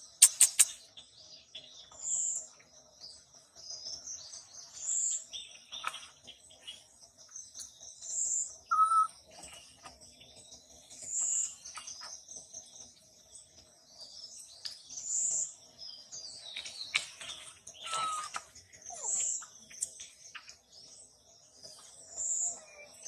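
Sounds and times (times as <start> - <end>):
birds chirping and calling: 0.0 - 23.0
high bird call: 8.7 - 9.1, 17.8 - 19.3.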